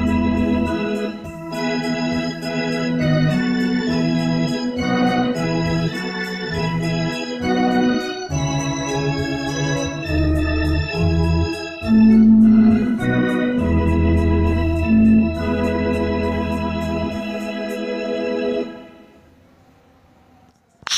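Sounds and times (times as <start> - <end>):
keyboard organ chords: 0.0 - 19.1.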